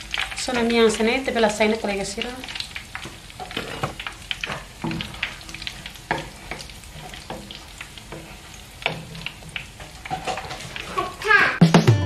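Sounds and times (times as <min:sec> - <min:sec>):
oil popping: 0:00.0 - 0:11.6
pastries sizzling in hot oil: 0:00.0 - 0:11.6
metal spoon stirring: 0:02.5 - 0:11.2.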